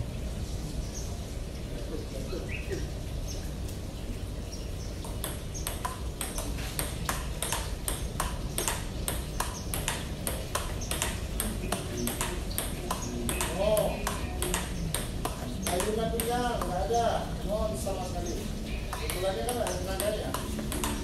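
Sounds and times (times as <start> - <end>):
ping-pong ball clicking: 5.0 - 17.1, 18.8 - 21.0.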